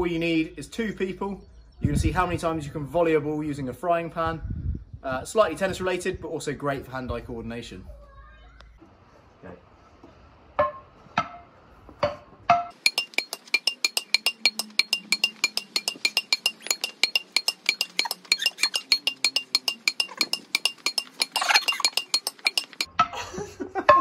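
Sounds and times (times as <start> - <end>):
tennis ball clinking on frying pans: 12.1 - 23.1.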